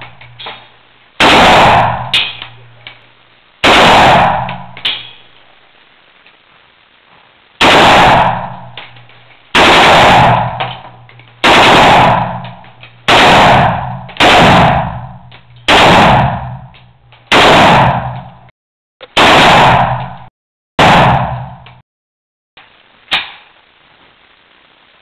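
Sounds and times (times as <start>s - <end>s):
rifle shots with ringing echo: 0.0s - 2.8s, 3.6s - 5.3s, 7.6s - 18.5s, 19.1s - 21.8s.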